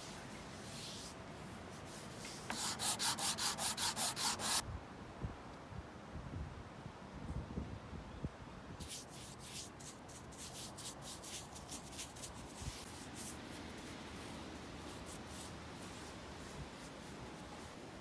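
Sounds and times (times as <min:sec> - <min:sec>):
brush swishing over wood: 0:00.0 - 0:04.6, 0:08.8 - 0:18.0.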